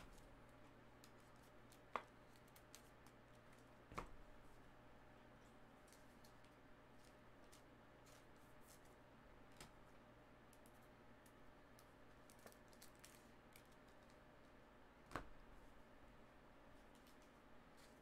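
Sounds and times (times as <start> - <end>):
faint clicks and plastic rustles: 10.5 - 15.3.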